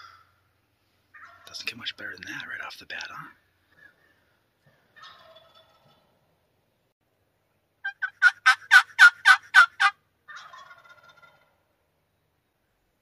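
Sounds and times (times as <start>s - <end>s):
turkey gobbling: 0.0s - 0.4s, 1.1s - 1.6s, 4.8s - 6.1s, 7.8s - 11.6s.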